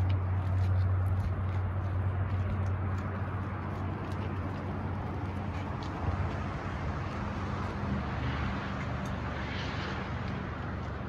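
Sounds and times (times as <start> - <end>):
vehicle hum with road noise: 0.0 - 11.0.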